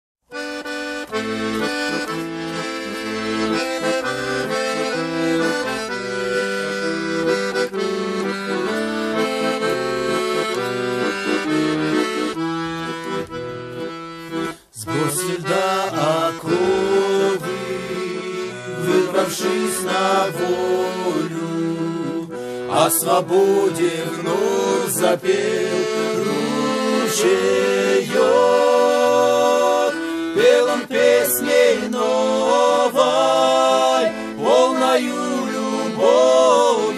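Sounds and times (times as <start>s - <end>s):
accordion playing held chords: 0.3s - 36.9s
men singing: 14.8s - 22.1s, 22.7s - 36.9s.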